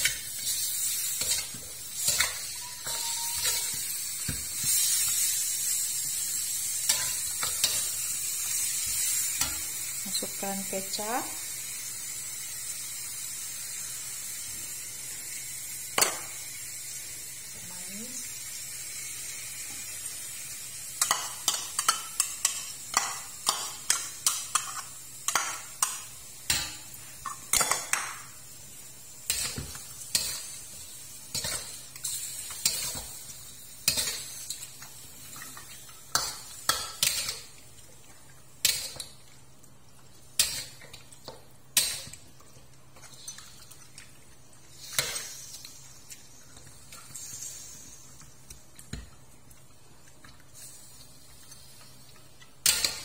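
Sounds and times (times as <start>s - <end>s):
metal spatula scraping wok: 0.4s - 3.8s.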